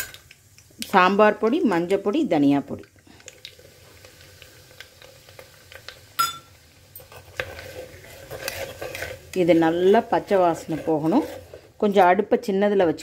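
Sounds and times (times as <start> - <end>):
faint oil sizzle: 0.0 - 13.0
sharp ringing clink: 6.2 - 6.5
metal spoon scraping on stone: 7.0 - 11.6.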